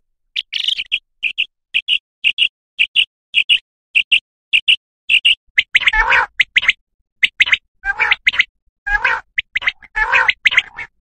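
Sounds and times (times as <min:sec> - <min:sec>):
quail calls: 0:05.1 - 0:11.0.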